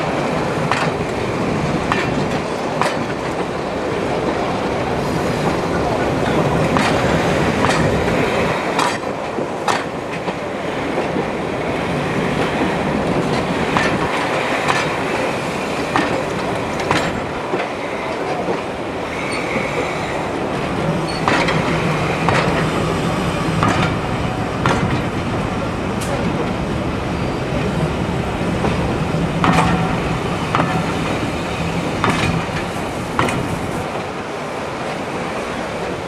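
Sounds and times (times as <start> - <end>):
train wheels clicking over joints: 0.6 - 3.6, 4.9 - 11.4, 12.0 - 26.6, 28.5 - 34.2
wheel squeal: 19.2 - 20.0.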